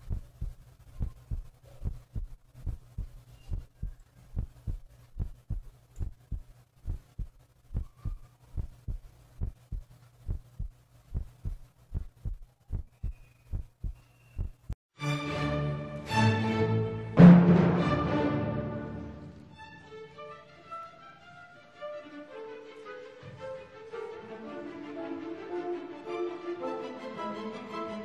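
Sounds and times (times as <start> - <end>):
heartbeat thumps: 0.0 - 14.8
low electrical hum: 0.0 - 14.8.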